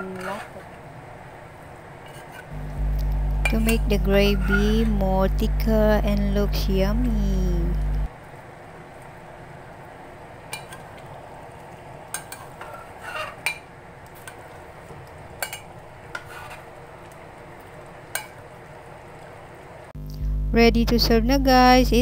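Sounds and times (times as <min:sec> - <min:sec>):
steady low hiss: 0:00.8 - 0:16.1.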